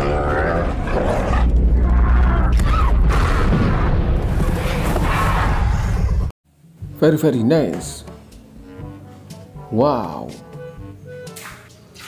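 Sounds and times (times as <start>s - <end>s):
film music: 6.1s - 12.0s.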